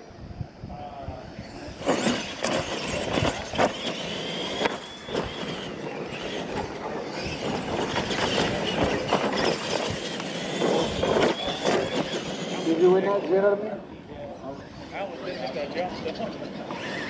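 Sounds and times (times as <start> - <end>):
toy truck motors whining: 1.3 - 13.6, 14.5 - 17.0
trucks landing with thumps: 1.8 - 12.6.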